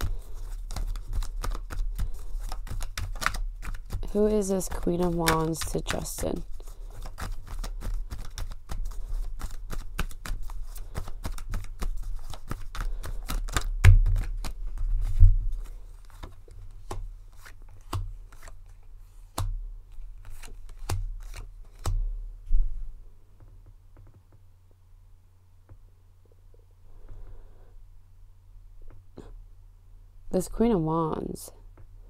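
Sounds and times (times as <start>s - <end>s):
cards shuffling: 0.0s - 22.0s
low steady hum: 0.0s - 32.0s.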